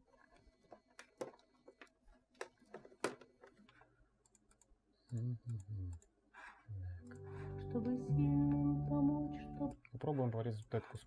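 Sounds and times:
music snippets with low note: 0:07.0 - 0:09.8.

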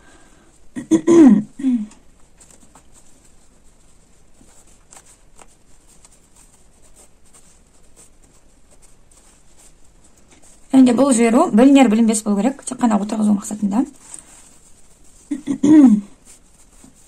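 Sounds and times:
fabric rustling: 0:02.0 - 0:17.0
person speaking: 0:10.4 - 0:16.8.

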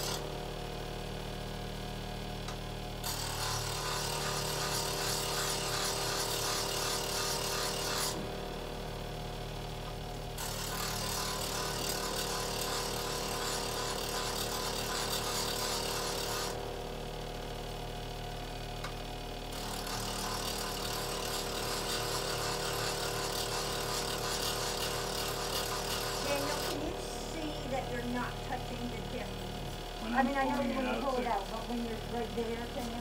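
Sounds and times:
chisel grinding on wheel: 0:00.0 - 0:00.2, 0:03.0 - 0:08.2, 0:10.4 - 0:16.6, 0:19.5 - 0:28.1
bench grinder motor hum: 0:00.0 - 0:33.0.

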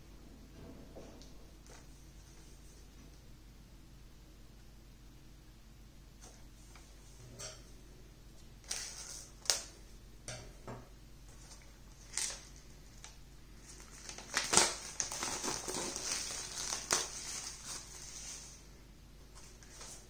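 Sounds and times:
plastic wrap crinkling and tearing: 0:08.6 - 0:09.7, 0:11.4 - 0:18.6.

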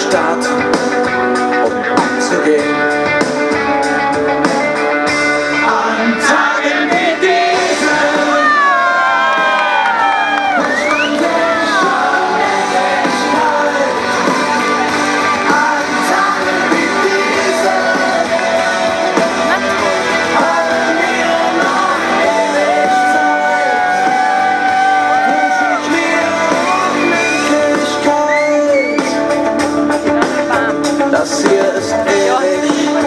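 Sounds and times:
pop song with singing: 0:00.0 - 0:33.0
crowd-like voices shouting: 0:05.7 - 0:28.3.

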